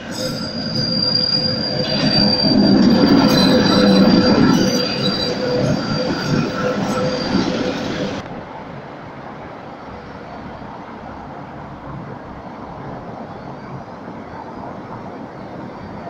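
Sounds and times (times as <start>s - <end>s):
tram wheels squealing on rails: 0.0s - 8.2s, 12.3s - 16.0s
street background noise: 0.0s - 16.0s.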